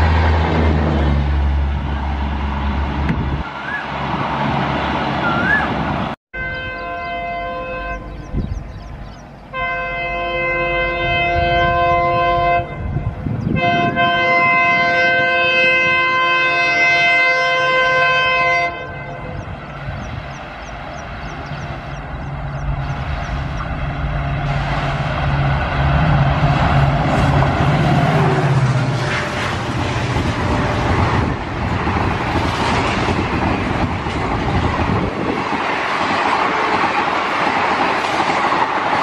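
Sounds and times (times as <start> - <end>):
train rumble: 0.0 - 39.0
train horn blasts: 6.4 - 8.5, 9.4 - 19.9, 24.1 - 31.4.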